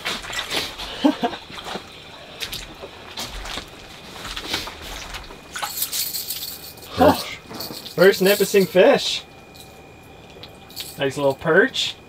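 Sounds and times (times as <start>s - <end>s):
water splashing and trickling: 0.0s - 8.9s
short vocal sound: 6.9s - 7.4s.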